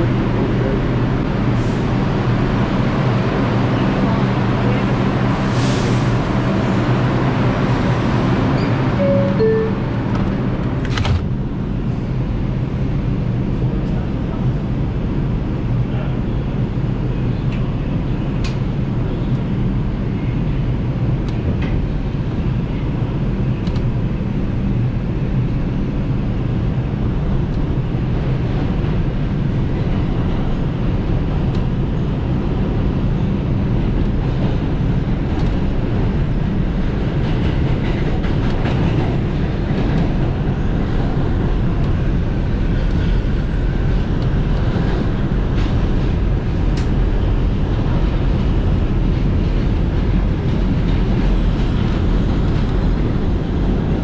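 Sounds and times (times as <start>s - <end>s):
subway wheels rumbling on rails: 0.0s - 54.0s.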